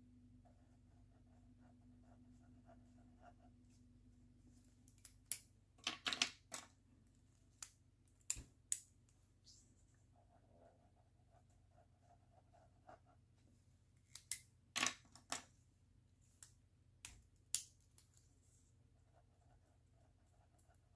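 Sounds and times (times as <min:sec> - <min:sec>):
plastic pens clicking and clattering: 0:04.9 - 0:06.7.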